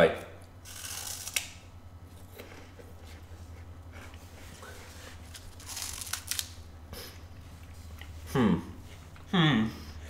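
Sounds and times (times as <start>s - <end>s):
low electrical hum: 0.0s - 10.0s
plastic wrapper crinkling and tearing: 5.3s - 6.6s.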